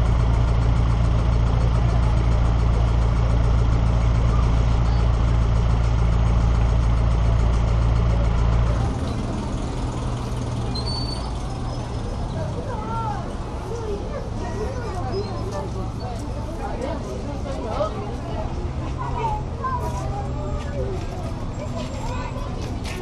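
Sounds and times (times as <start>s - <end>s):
car engine idling: 0.0s - 23.0s
street noise: 0.0s - 23.0s.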